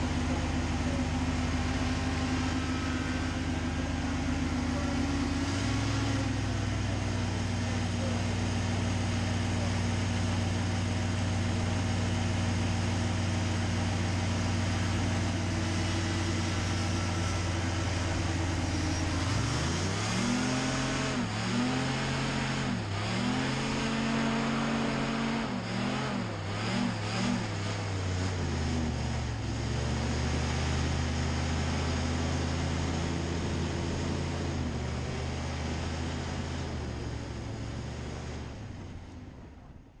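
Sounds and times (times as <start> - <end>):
hovercraft engine and fan revving: 0.0 - 40.0.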